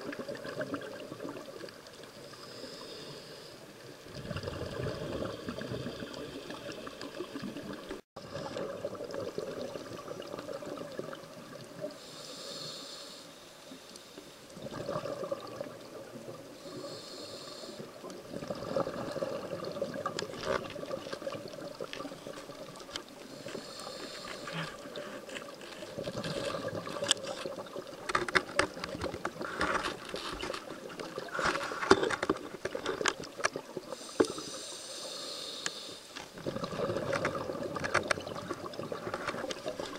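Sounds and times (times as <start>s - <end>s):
regulator breathing hiss: 2.3s - 3.6s, 12.0s - 14.4s, 16.6s - 18.0s, 23.3s - 24.7s, 33.9s - 36.3s
bubbling exhalations: 4.1s - 11.6s, 14.6s - 16.2s, 18.2s - 22.8s, 23.6s - 33.4s, 36.3s - 39.9s.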